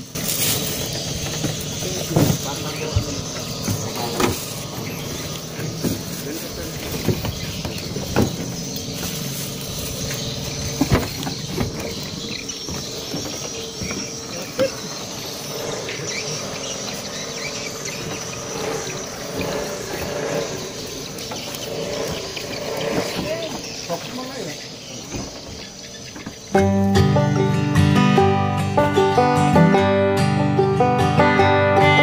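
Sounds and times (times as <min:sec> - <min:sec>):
outdoor background noise: 0:00.0 - 0:32.0
footsteps knocking on wooden boat: 0:05.7 - 0:08.8, 0:10.1 - 0:14.3.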